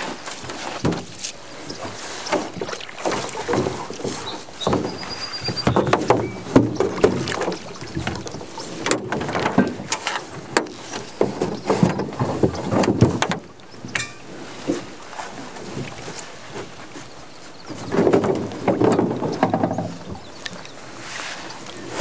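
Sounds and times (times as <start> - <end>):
net and rope knocking on hull: 0.0 - 16.7, 17.8 - 20.2
water splashing and dripping: 0.0 - 17.0.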